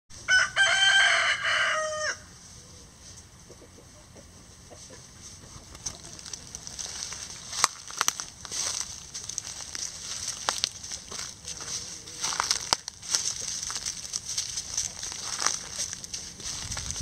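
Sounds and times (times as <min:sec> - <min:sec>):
rooster crowing: 0:00.2 - 0:02.4
chickens clucking softly: 0:02.5 - 0:06.7
dry leaves crackling: 0:05.2 - 0:17.0.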